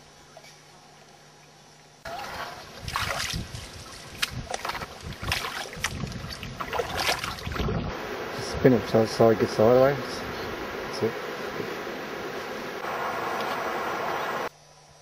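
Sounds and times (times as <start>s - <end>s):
paddles splashing in water: 2.1s - 7.9s
wind rumbling on microphone: 2.2s - 14.5s.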